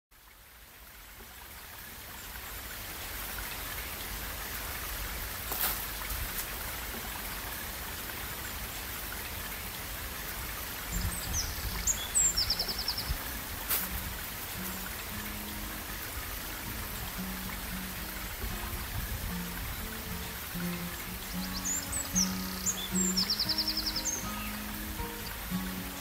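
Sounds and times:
running water: 0.1s - 26.0s
small birds chirping: 10.6s - 18.7s, 19.3s - 26.0s
rapid bird trill: 21.2s - 24.8s.

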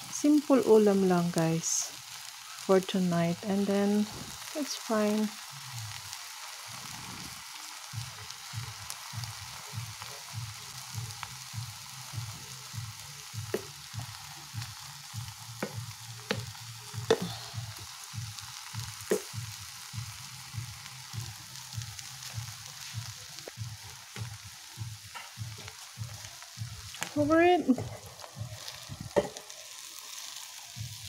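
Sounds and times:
food sizzling in a frying pan: 0.0s - 31.0s
soft low thumps: 15.2s - 29.3s.

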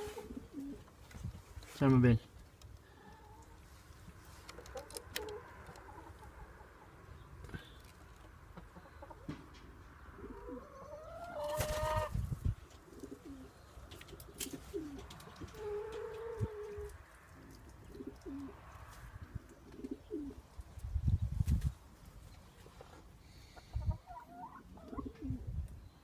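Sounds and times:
wood pigeons cooing: 0.0s - 1.0s, 8.6s - 20.5s, 23.2s - 25.8s.

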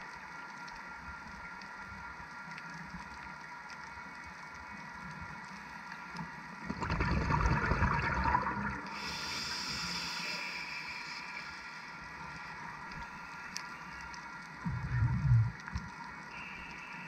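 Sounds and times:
underwater exhaled breath bubbling: 6.7s - 10.2s
regulator inhale hiss: 8.8s - 14.0s, 16.3s - 17.0s.

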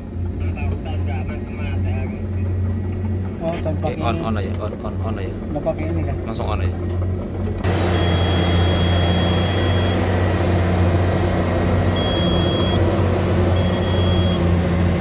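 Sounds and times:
excavator diesel engine running: 0.0s - 15.0s
alarm buzzer beeping: 7.9s - 10.0s, 12.0s - 12.9s, 13.5s - 14.6s.

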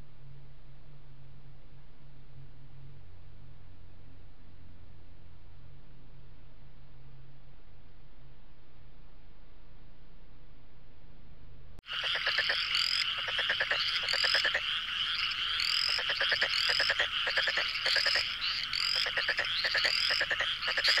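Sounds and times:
chorus of croaking animal calls: 11.9s - 21.0s.

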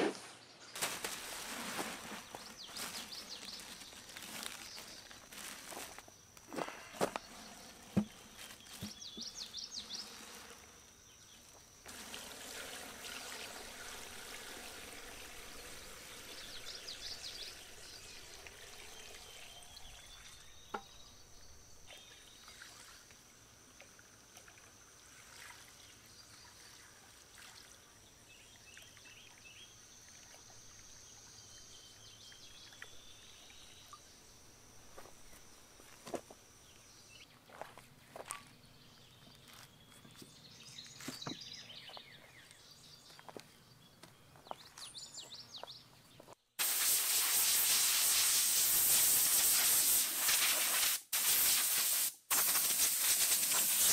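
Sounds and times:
liquid pouring into plastic bag: 0.8s - 6.0s.

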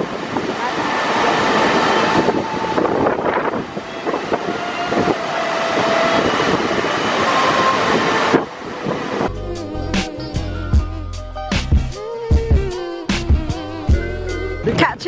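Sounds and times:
waterfall roaring: 0.0s - 9.3s.

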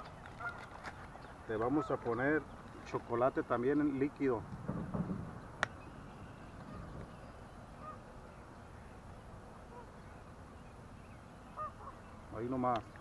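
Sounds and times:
outdoor background noise: 0.0s - 13.0s
geese honking in the distance: 0.3s - 0.8s, 1.5s - 2.5s, 6.0s - 8.4s, 9.6s - 10.1s, 11.5s - 12.4s.

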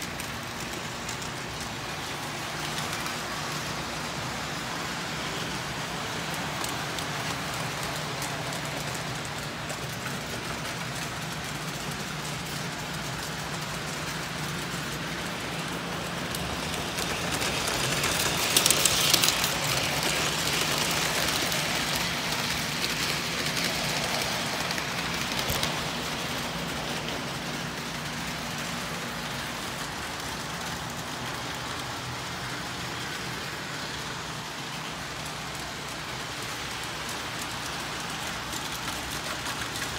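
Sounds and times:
model trains rolling whir: 0.0s - 39.9s.

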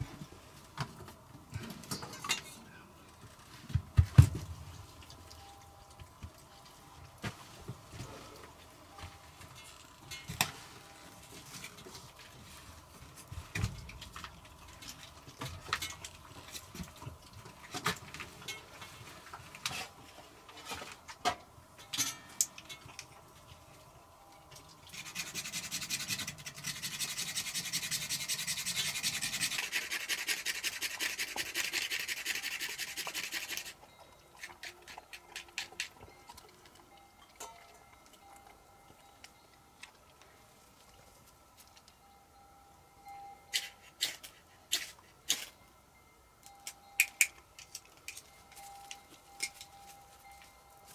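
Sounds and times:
handling knocks and rustles: 0.0s - 23.6s
knife scraping wood: 24.9s - 33.8s.

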